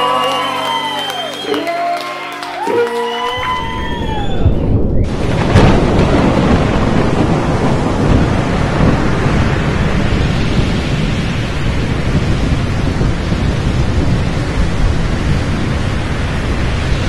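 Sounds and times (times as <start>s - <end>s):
heavy rain rushing: 0.0s - 17.0s
deep thunder rumble: 3.5s - 17.0s.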